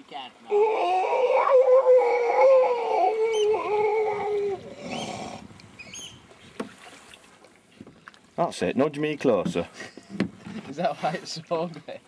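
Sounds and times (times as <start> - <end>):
seal moaning: 0.4 - 6.0
water splash: 3.5 - 8.2.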